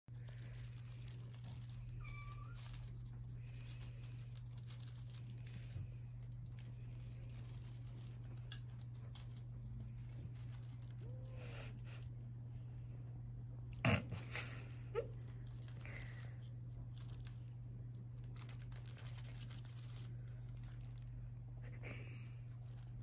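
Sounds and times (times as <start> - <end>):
kittens playing with feather toy: 0.1 - 12.0, 14.4 - 21.2, 22.4 - 23.0
steady low hum: 0.1 - 23.0
thin squeaks: 0.2 - 11.6.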